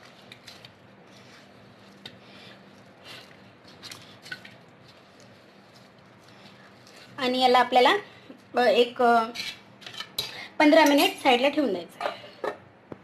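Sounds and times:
dough squishing: 0.0 - 7.6.

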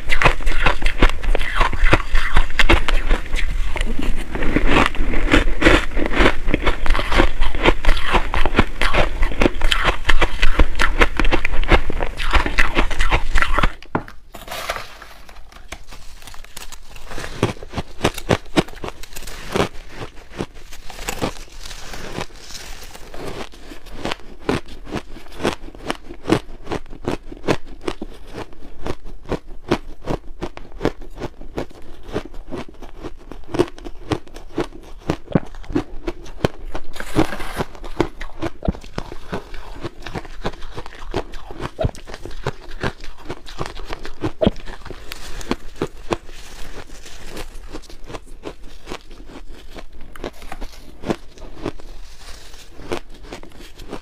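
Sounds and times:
shaved ice crunching being chewed: 0.0 - 54.0.

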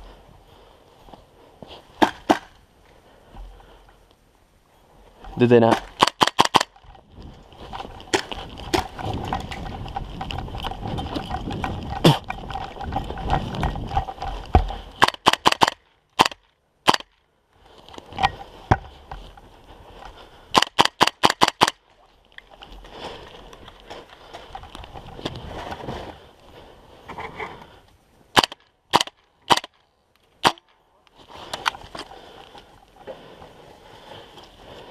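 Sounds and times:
airsoft rifle shots: 5.6 - 6.8, 15.0 - 17.2, 20.6 - 21.8, 28.4 - 29.8
footsteps crunching on snow: 7.0 - 15.0.

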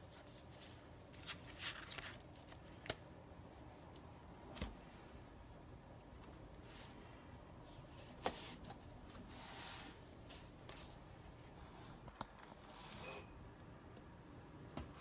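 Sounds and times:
paper pages rustling: 0.0 - 3.0.

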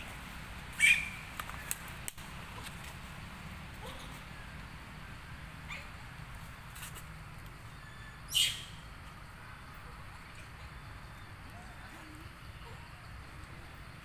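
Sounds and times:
monkey squealing: 0.8 - 1.2.

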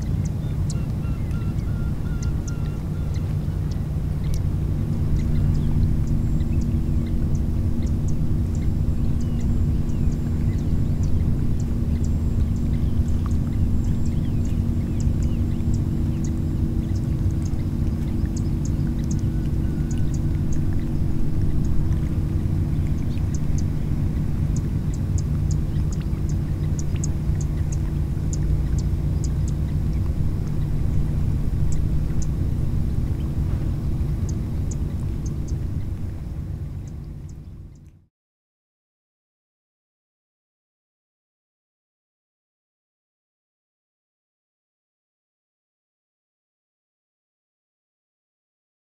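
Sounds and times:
faint high ticks: 0.0 - 6.7, 7.3 - 30.7, 33.1 - 36.2
steady low rumble: 0.0 - 38.0
constant low hum: 0.0 - 38.1.

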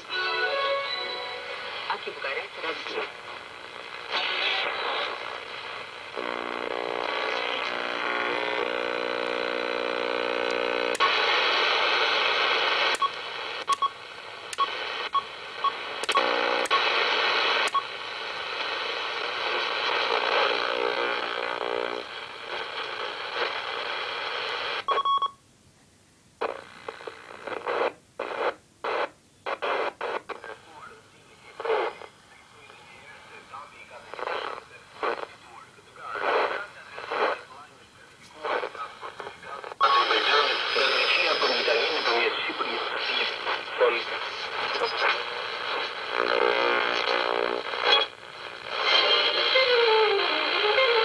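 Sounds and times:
radio static and hiss: 0.0 - 25.0, 26.4 - 51.0
buzzing carrier tones: 3.4 - 17.9.

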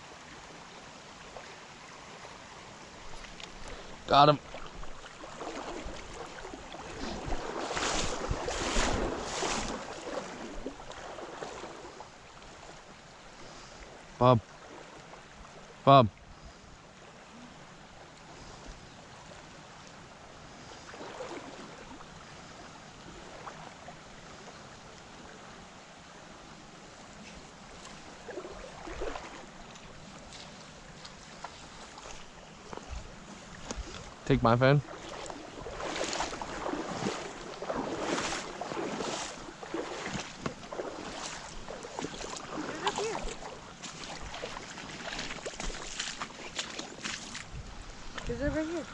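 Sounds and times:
creek flowing over stones: 0.0 - 48.9
wind on microphone: 4.6 - 10.8, 47.4 - 48.9.

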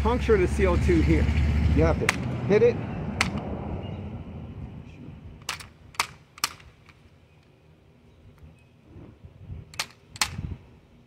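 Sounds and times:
air pistol mechanical clicks: 3.2 - 3.5, 5.4 - 7.0, 9.7 - 10.5.

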